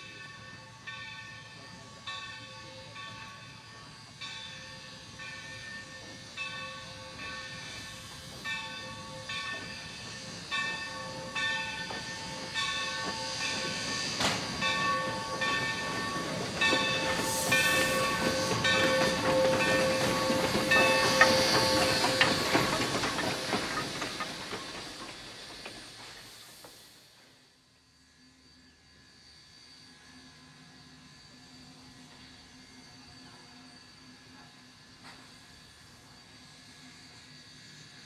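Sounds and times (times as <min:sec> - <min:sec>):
steam locomotive bell ringing: 0:00.0 - 0:26.2
steam hissing: 0:00.0 - 0:38.0.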